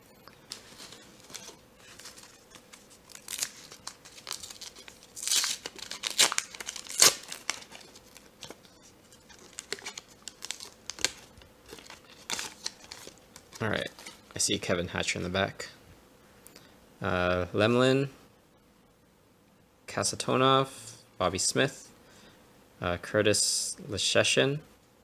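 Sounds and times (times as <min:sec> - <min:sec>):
foil wrapper tearing: 0:00.5 - 0:14.4.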